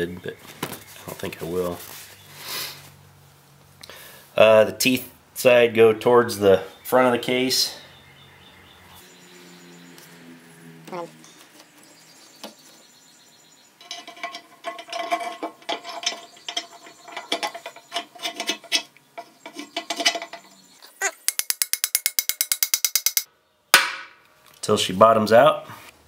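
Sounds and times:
metal parts clinking on metal: 13.8s - 20.6s.

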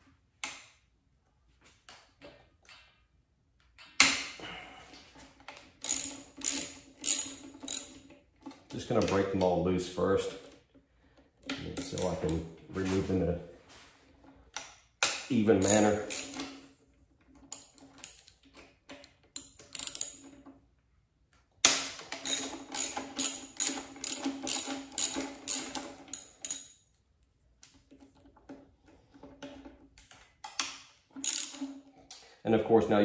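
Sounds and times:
socket ratchet clicking: 5.8s - 8.1s, 15.6s - 16.5s, 19.3s - 20.2s, 21.6s - 26.7s, 30.5s - 31.7s.

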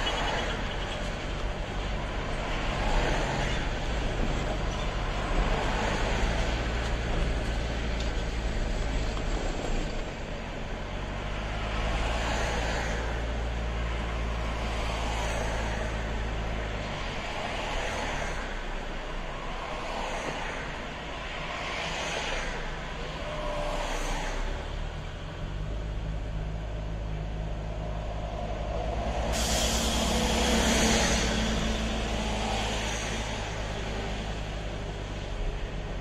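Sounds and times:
tyre road noise: 0.0s - 36.0s
vehicles passing: 0.0s - 36.0s
car engine: 4.0s - 36.0s.

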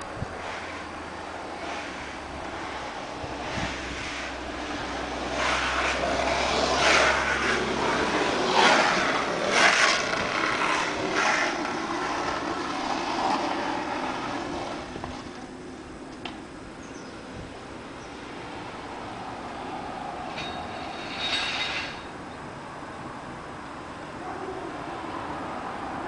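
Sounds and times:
vehicle passing by: 0.2s - 15.5s, 17.8s - 22.2s, 22.8s - 26.0s.

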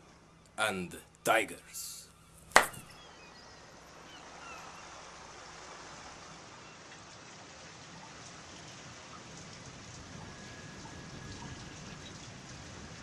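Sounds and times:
rain falling steadily: 3.8s - 13.0s.

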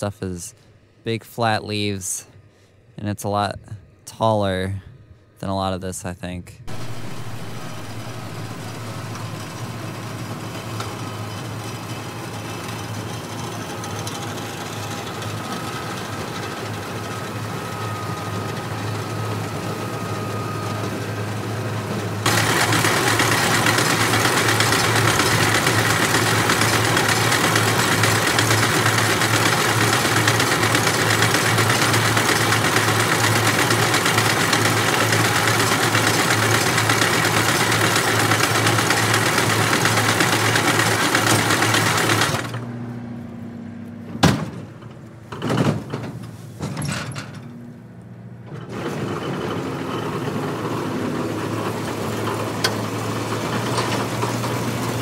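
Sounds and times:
tractor engine hum: 0.0s - 55.0s
baler mechanical clatter: 6.7s - 21.1s, 21.9s - 42.8s, 44.1s - 55.0s
sharp knocks and clunks: 44.1s - 47.4s.

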